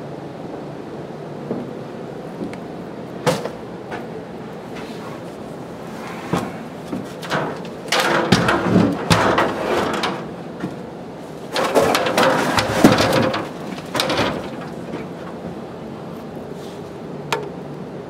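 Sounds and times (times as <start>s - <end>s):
stepladder knocking and clattering: 6.9s - 10.8s, 11.5s - 15.6s.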